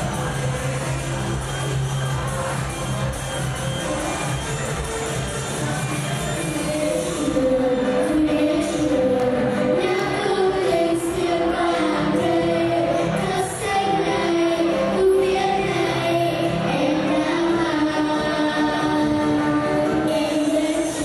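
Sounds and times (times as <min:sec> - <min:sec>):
music accompaniment: 0:00.0 - 0:21.0
girls singing into microphones: 0:06.5 - 0:21.0.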